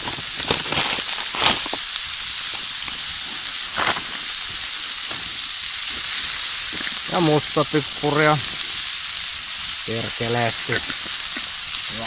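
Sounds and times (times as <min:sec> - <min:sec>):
loud crackles: 0:00.0 - 0:09.2
meat sizzling in butter: 0:00.0 - 0:12.0.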